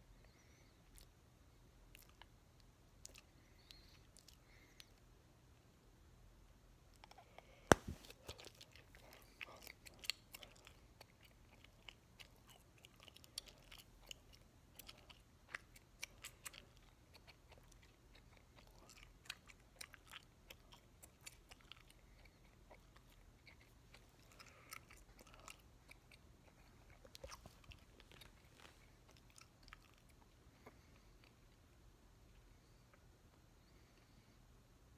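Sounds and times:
chewing gum clicks and smacks: 1.9 - 5.0, 6.9 - 31.6.

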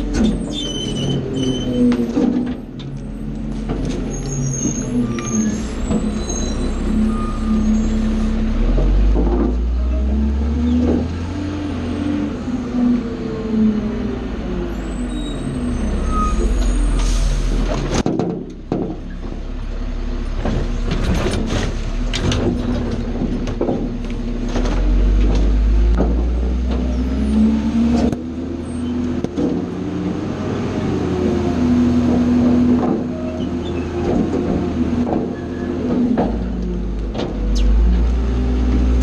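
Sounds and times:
garbage truck engine revving: 0.0 - 39.0
cart knocks and thuds: 8.7 - 9.8, 17.7 - 19.5, 20.3 - 27.1, 31.9 - 37.5.

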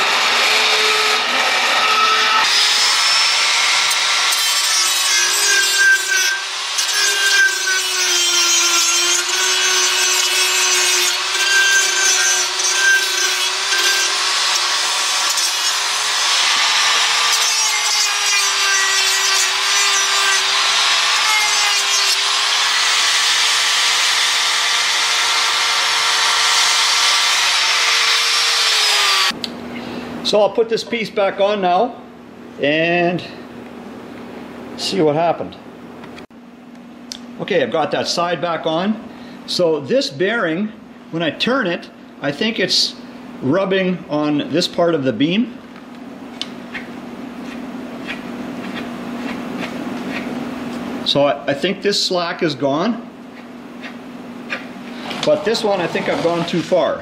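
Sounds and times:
die grinder grinding steel: 0.0 - 29.4, 53.4 - 57.0.

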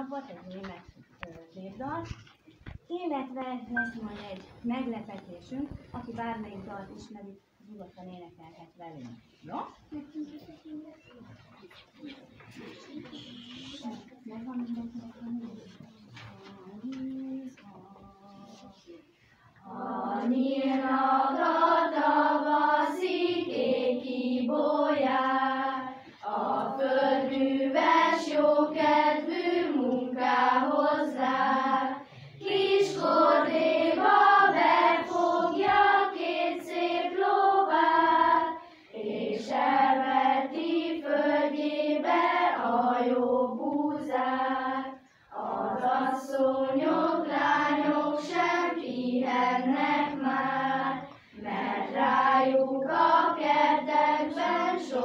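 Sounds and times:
children's choir singing: 15.1 - 55.0.

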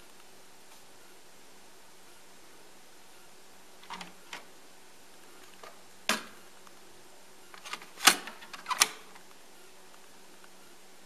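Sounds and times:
plastic clicks and clatter: 3.8 - 4.5, 7.6 - 9.3.

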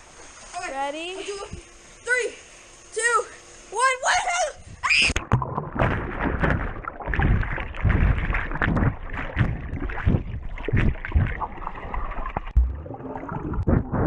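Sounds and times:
low underwater thumps: 5.2 - 14.0
underwater bubbles and churning: 5.2 - 14.0.

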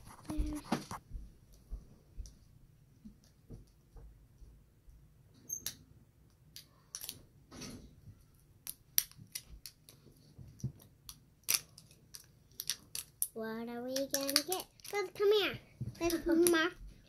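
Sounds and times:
plastic wrapping crackling: 11.5 - 15.3.

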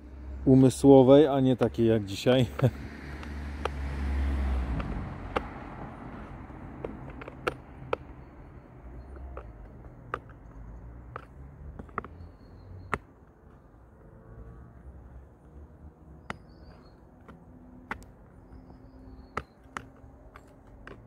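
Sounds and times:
socket wrench clicking on screws: 6.1 - 8.3, 9.0 - 12.3.

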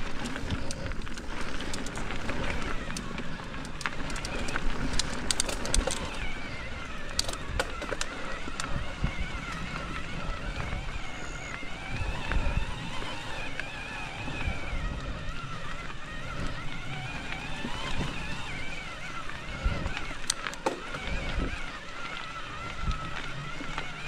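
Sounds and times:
sharp clicks and rattles: 0.0 - 9.6, 17.8 - 24.0
bike tyres rumbling on dirt: 0.0 - 24.0
wind on microphone: 0.0 - 24.0.

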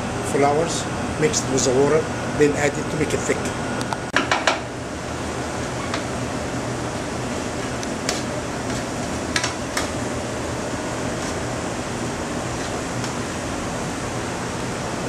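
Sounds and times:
exhaust hood fan whirring: 0.0 - 15.0.

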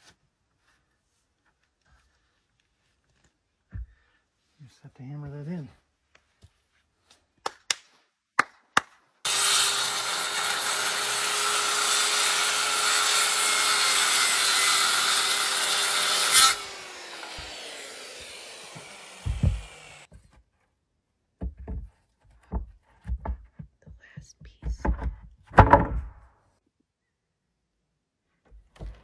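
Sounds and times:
circular saw cutting wood: 9.3 - 20.1
saw blade winding down: 9.3 - 20.1
thumps and knocks: 18.6 - 20.5, 21.4 - 26.3, 28.4 - 29.0
hammer knocks: 18.7 - 20.0.

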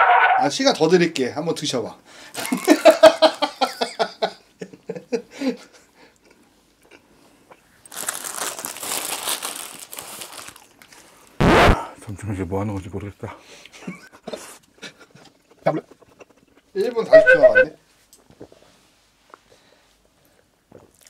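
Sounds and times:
paper wrapper crinkling: 2.4 - 2.8, 7.8 - 11.3.

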